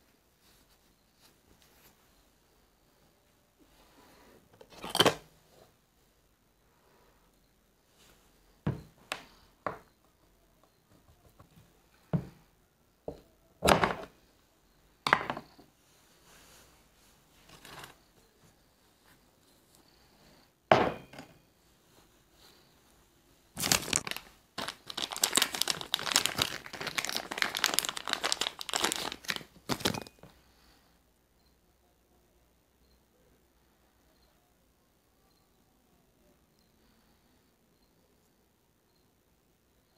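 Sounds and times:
plastic bag crinkling: 23.5s - 30.2s.

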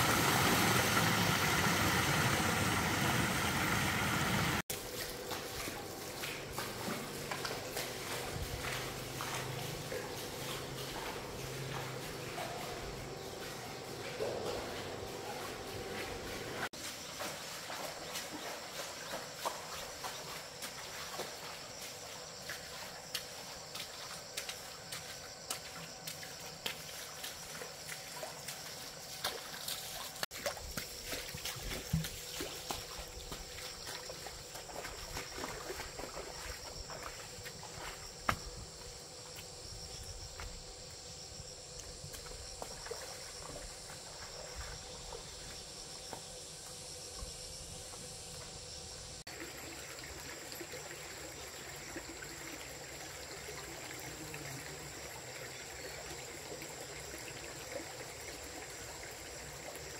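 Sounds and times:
stream water trickling: 0.0s - 59.9s
small clicks and splashes: 22.4s - 38.0s.

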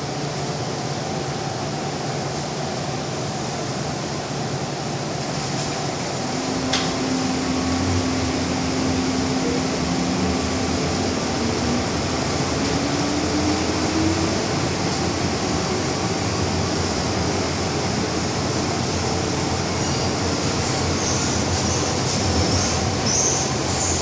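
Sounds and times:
train rumble and ventilation hiss: 0.0s - 24.0s
train motor whine: 5.5s - 16.3s.

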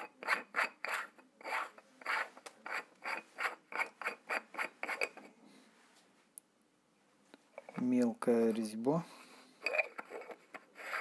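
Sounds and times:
threaded cap rasping: 0.0s - 5.2s, 9.6s - 11.0s.

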